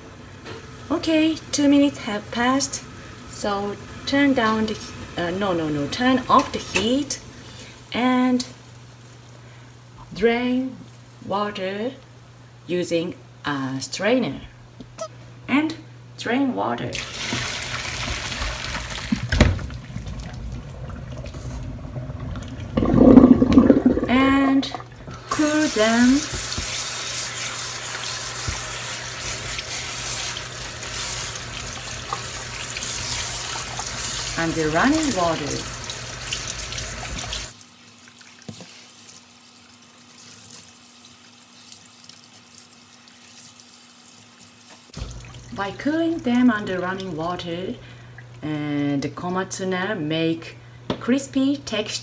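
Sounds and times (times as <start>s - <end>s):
tap water splashing into sink: 17.0s - 20.6s, 26.1s - 26.9s, 28.4s - 28.7s, 34.9s - 37.5s, 38.1s - 38.8s, 44.7s - 45.6s
water splashing into a sink: 17.0s - 45.7s.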